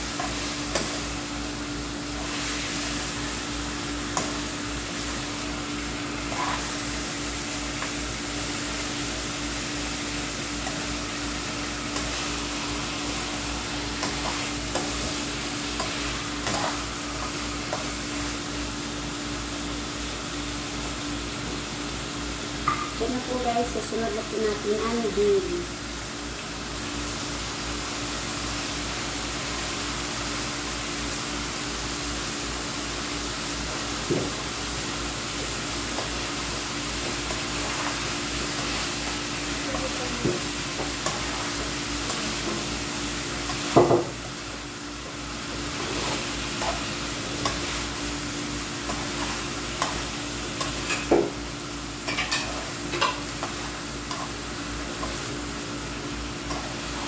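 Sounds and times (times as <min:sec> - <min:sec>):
food sizzling in a wok: 0:00.0 - 0:57.0
metal spoon scraping a pan: 0:15.8 - 0:16.8, 0:52.1 - 0:54.4.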